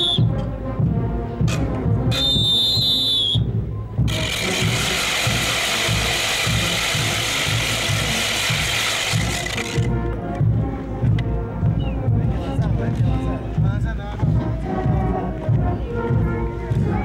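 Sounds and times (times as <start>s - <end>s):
whistle blowing: 0.0s - 0.3s, 2.1s - 3.6s
wooden ratchets rattling: 4.1s - 9.9s.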